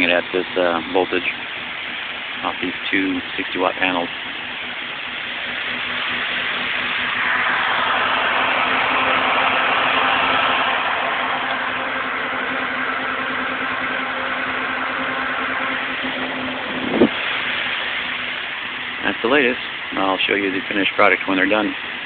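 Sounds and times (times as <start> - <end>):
steady low hum: 0.0 - 22.0
electric fan whooshing air: 6.4 - 20.6.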